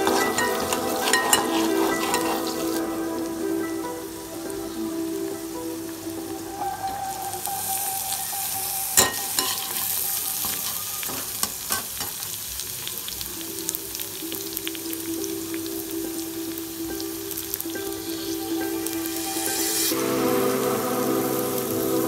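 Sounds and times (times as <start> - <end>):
spatula scraping a pan: 0.0 - 2.9
vegetables sizzling in oil: 0.0 - 22.0.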